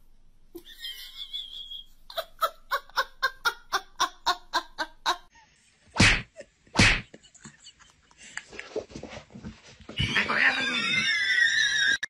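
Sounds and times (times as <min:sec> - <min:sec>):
person laughing: 0:00.6 - 0:05.3.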